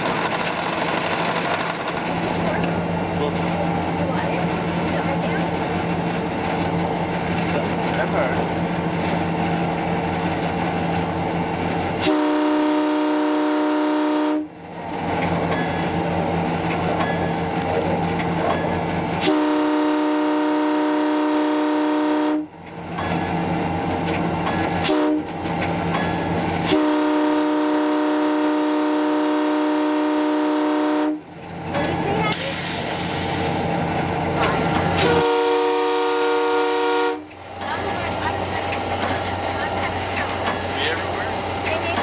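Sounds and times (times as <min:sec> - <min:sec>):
diesel engine hum: 0:00.0 - 0:12.0, 0:31.3 - 0:42.0
moving train rumble: 0:00.0 - 0:42.0
locomotive air horn blasts: 0:12.0 - 0:14.5, 0:19.2 - 0:22.5, 0:24.8 - 0:25.3, 0:26.6 - 0:31.2, 0:35.0 - 0:37.3.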